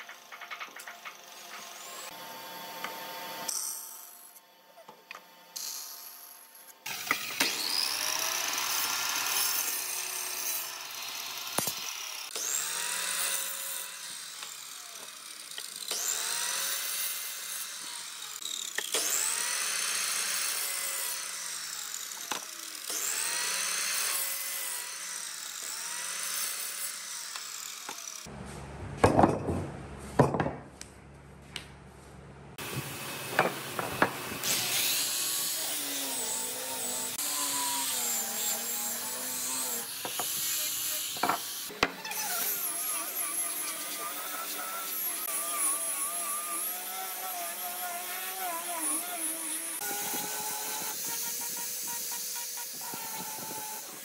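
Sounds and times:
miter saw cutting wood: 0.0s - 4.4s, 5.6s - 28.3s, 32.6s - 54.0s
power sander: 6.8s - 28.3s, 32.6s - 54.0s
low hum: 28.3s - 33.3s.

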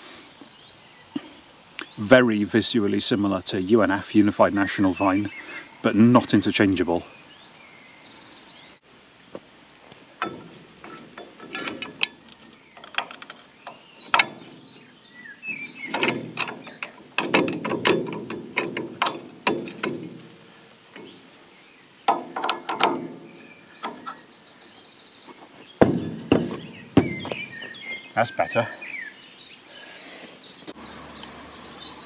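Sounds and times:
metal clanks and rattles: 10.1s - 21.4s, 22.0s - 24.4s, 25.3s - 28.0s.

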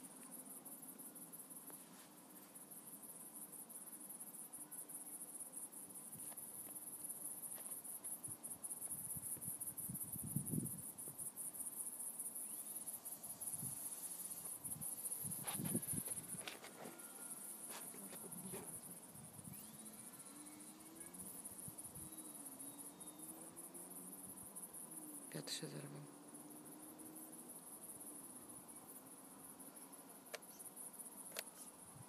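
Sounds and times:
crickets chirping: 0.0s - 32.0s.

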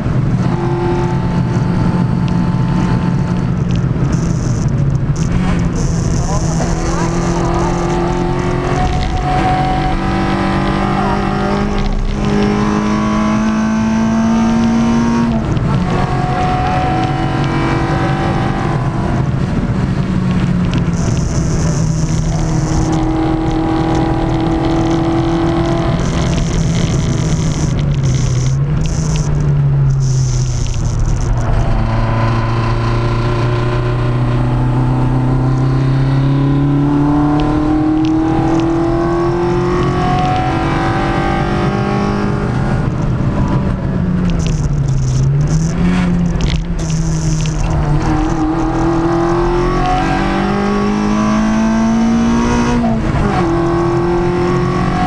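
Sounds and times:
car engine accelerating: 0.0s - 55.0s.

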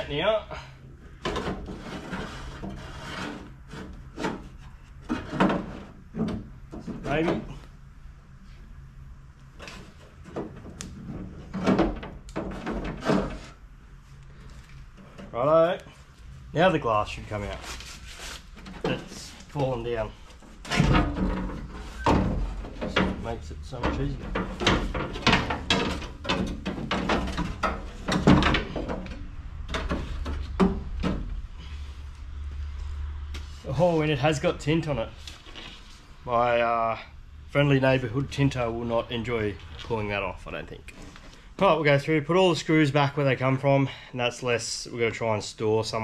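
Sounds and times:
metal window frame scraping: 1.2s - 7.6s, 17.3s - 32.0s.

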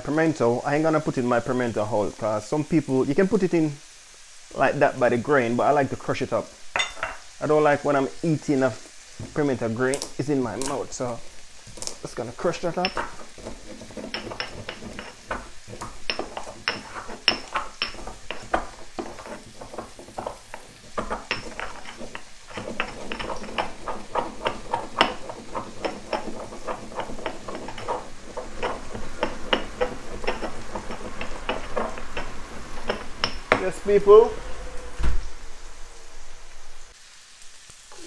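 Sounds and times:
stone pestle crushing in mortar: 11.6s - 33.8s.

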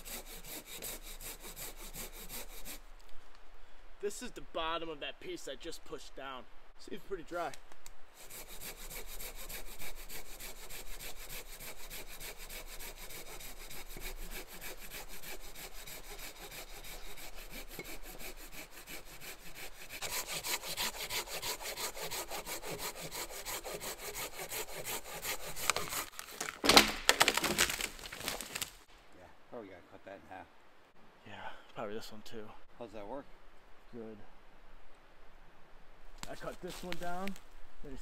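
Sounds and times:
handsaw cutting dry wood: 0.0s - 2.8s, 8.2s - 28.6s.

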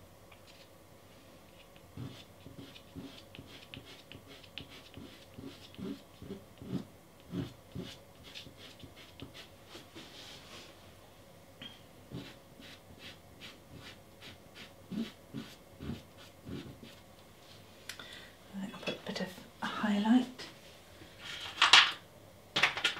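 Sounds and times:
pastel stick scratching on board: 1.6s - 9.8s, 12.1s - 17.0s.

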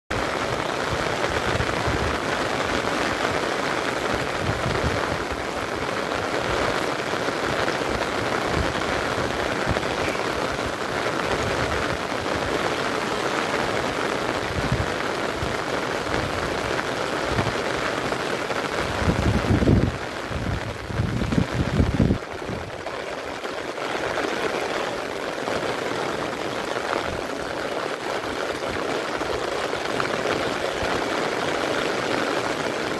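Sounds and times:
heavy rain on water and grass: 0.1s - 32.9s.

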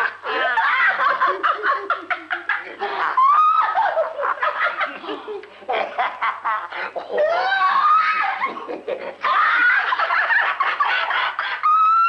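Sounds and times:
man and woman laughing: 0.0s - 12.0s
high rising-and-falling laugh: 0.2s - 12.0s.

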